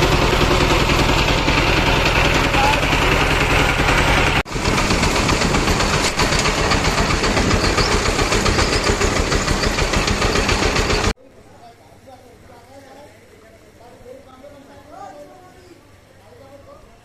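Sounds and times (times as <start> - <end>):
motorcycle engines running: 0.0 - 11.1.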